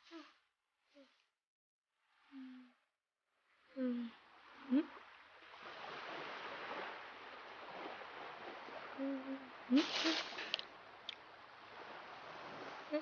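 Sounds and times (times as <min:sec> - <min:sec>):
distant surf: 0:05.4 - 0:13.0.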